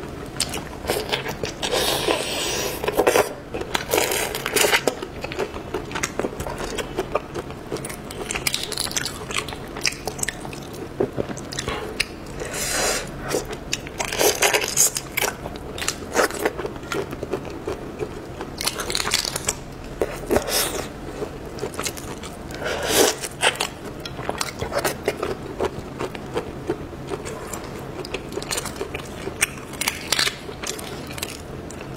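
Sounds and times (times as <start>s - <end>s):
chewing: 13.2s - 31.9s.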